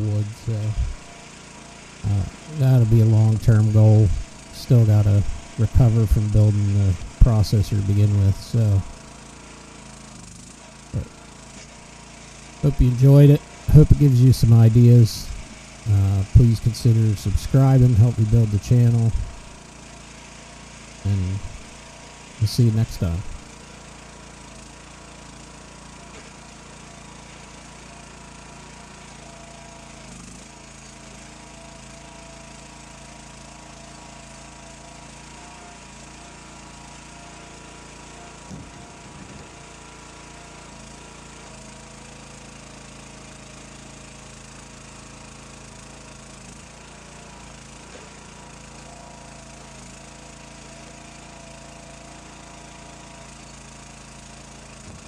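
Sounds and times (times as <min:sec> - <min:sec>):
small engine running: 0:00.0 - 0:55.0.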